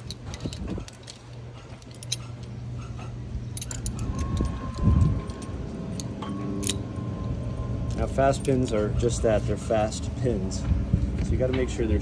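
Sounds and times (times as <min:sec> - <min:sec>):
metal fittings clinking: 0:00.0 - 0:02.9, 0:03.5 - 0:06.8.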